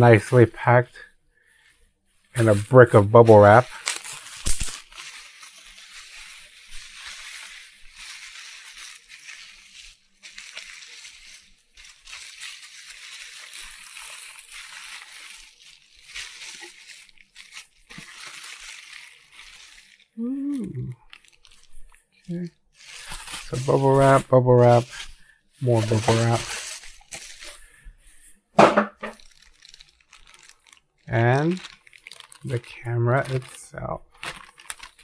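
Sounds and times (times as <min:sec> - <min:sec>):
bubble wrap crinkling: 0:01.5 - 0:28.3, 0:29.0 - 0:35.0
man's brief vocal sound: 0:20.2 - 0:21.0.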